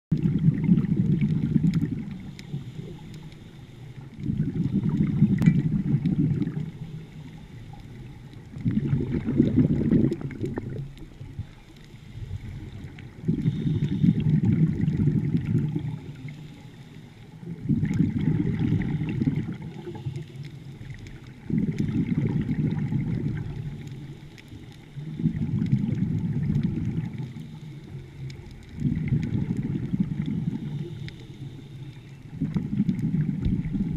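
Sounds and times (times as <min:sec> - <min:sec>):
regulator exhalation bubbling: 0:04.2 - 0:06.7, 0:08.6 - 0:10.9, 0:13.2 - 0:16.1.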